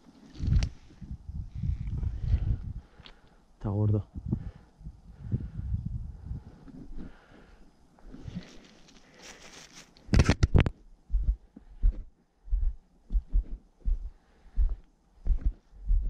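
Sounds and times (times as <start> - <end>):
soft rustling: 6.5 - 10.3
footsteps on stony dirt track: 11.1 - 16.0.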